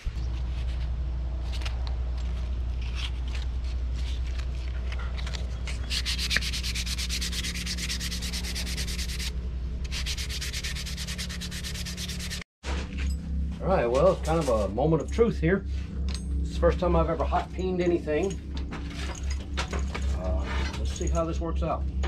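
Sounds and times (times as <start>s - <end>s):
steady low hum: 0.0s - 22.0s
sanding wood: 5.6s - 12.4s.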